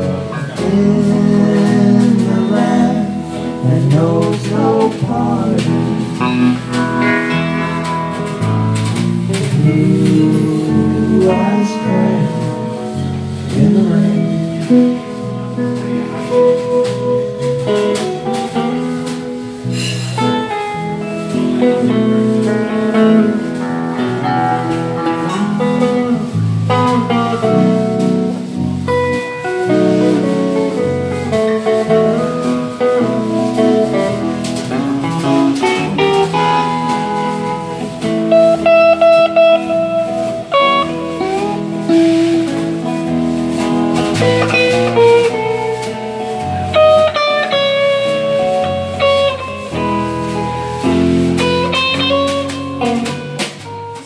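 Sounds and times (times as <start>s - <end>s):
bass guitar: 0.0s - 54.0s
drums: 0.0s - 54.0s
electric guitar melody: 0.0s - 54.0s.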